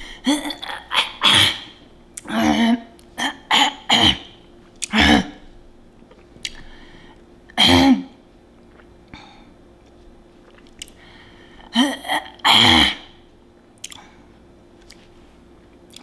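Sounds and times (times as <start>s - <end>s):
woman coughing: 0.3s - 5.4s, 7.6s - 8.2s, 11.7s - 13.2s.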